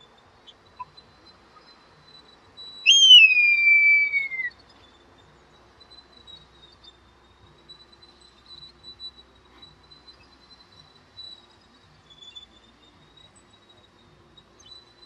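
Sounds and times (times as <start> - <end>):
bird whistled call: 2.6 - 4.9.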